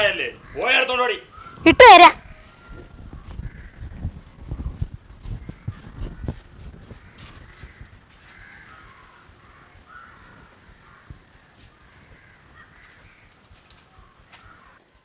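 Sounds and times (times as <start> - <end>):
crows cawing: 0.0 - 1.8, 3.2 - 4.0, 5.4 - 14.8.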